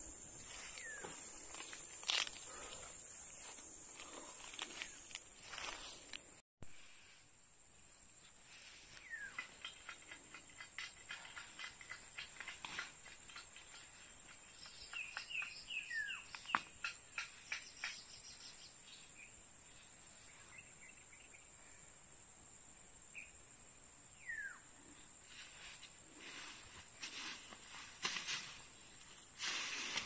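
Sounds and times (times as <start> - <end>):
insect drone: 0.0 - 30.0
bird chirps: 8.9 - 10.0, 13.3 - 19.3.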